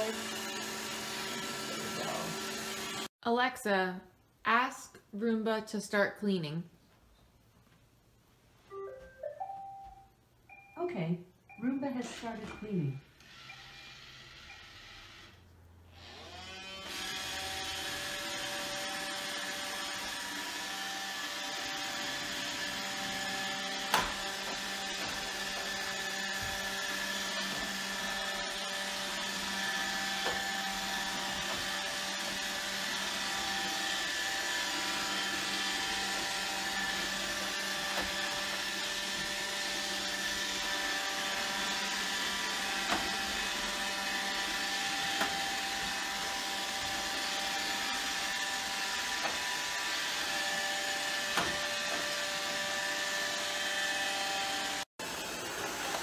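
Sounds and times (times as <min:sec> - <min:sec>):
robot vacuum running: 0:13.2 - 0:15.4, 0:16.0 - 0:56.0.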